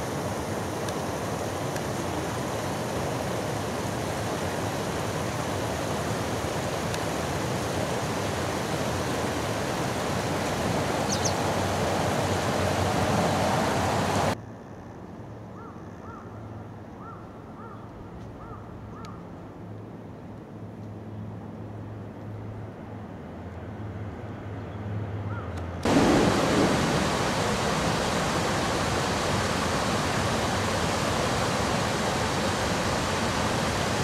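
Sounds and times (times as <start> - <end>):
water rushing over weir: 0.0 - 14.4, 25.8 - 34.0
short calls: 11.0 - 11.6.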